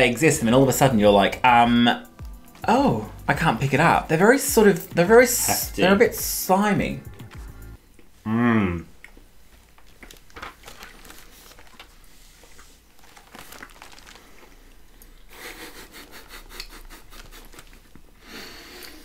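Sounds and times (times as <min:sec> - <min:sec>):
plastic packaging crinkling: 0:09.6 - 0:14.9.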